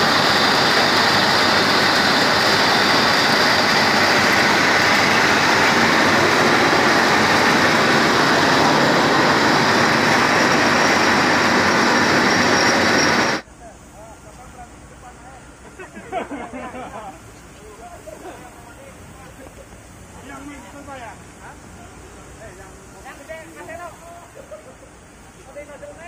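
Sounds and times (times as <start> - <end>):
water driven through pipe: 0.0 - 12.9
diesel pump engine running: 0.0 - 13.4.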